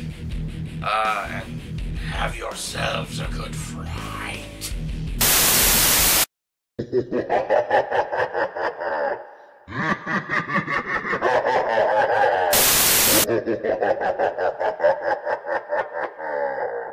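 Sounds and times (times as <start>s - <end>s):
static noise burst: 5.2s - 6.3s, 12.5s - 13.3s
person laughing in pulses: 6.8s - 16.9s.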